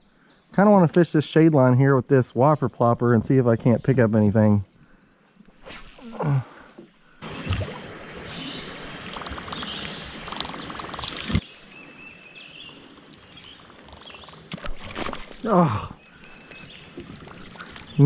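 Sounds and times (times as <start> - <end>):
soft water sounds: 5.2 - 18.0.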